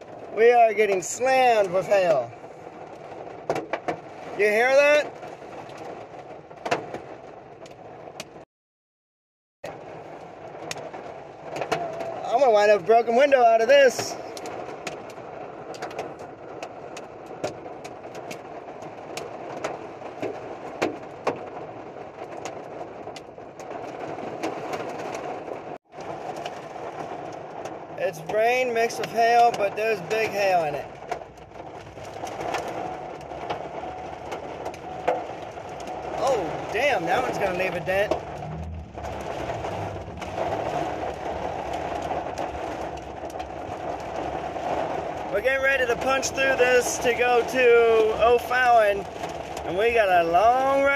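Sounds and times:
rain hiss on truck: 0.0s - 8.2s, 9.7s - 50.9s
hailstones clacking on glass: 25.9s - 50.9s
low rumble: 30.8s - 46.0s.

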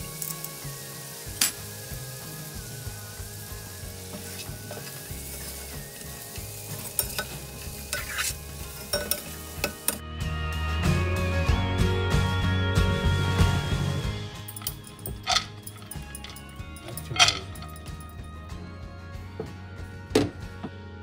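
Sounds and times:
food sizzling in a pan: 0.0s - 10.0s
metal spatula scraping pan: 4.2s - 10.0s, 15.1s - 17.8s.

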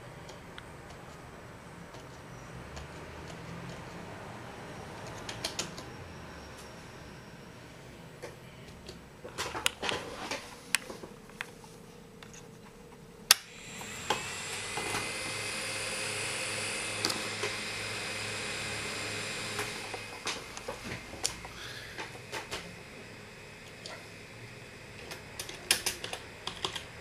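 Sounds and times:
small electric motors whining: 0.6s - 8.4s, 13.3s - 27.0s.

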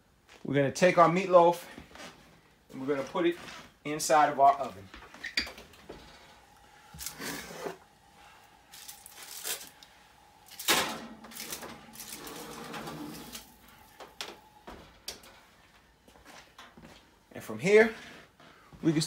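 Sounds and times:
metal pan scraping on oven rack: 10.8s - 13.5s.

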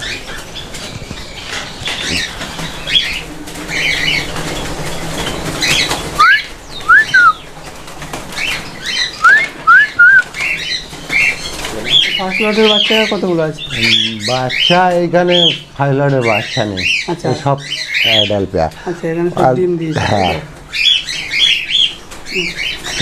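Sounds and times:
birds chirping: 0.0s - 23.0s
birds fluttering: 0.0s - 23.0s
short rising whistles: 6.2s - 7.4s, 9.2s - 10.3s.

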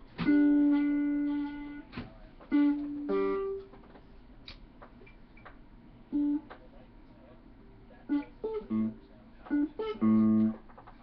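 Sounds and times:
electric guitar single notes: 0.2s - 3.8s, 6.1s - 6.6s, 8.1s - 10.7s
pick clicking on strings: 9.5s - 11.0s.

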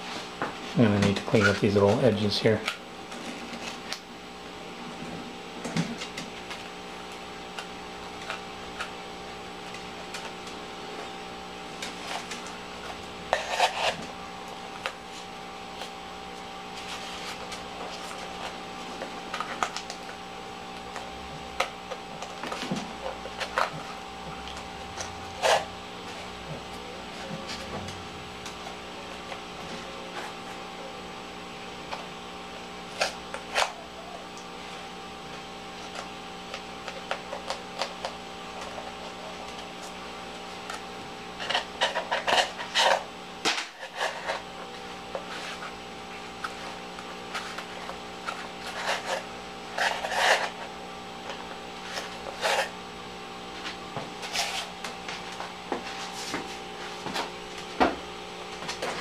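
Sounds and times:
steady low hum: 0.0s - 59.0s
scraping and rubbing: 11.9s - 14.2s, 16.7s - 20.0s, 22.4s - 28.0s, 45.1s - 50.8s, 51.8s - 52.8s, 53.5s - 57.4s.

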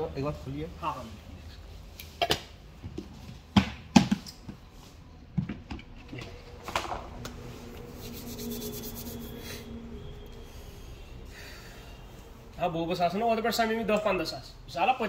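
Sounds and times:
faint steady hum: 4.6s - 14.7s.

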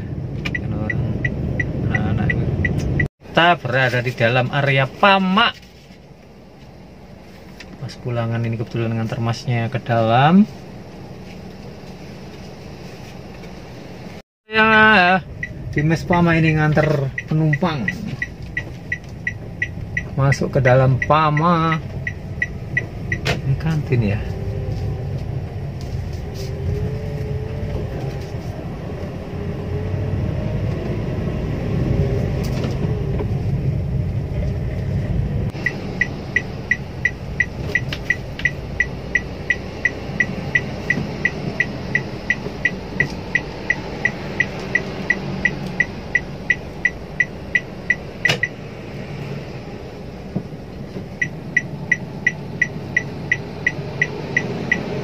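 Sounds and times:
turn signal ticking: 0.0s - 3.1s, 14.6s - 55.0s
car cabin engine and tyre rumble: 0.0s - 55.0s.

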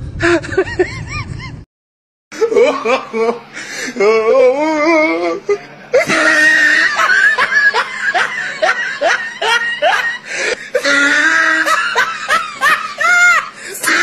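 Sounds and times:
warbling voice: 13.8s - 14.0s.

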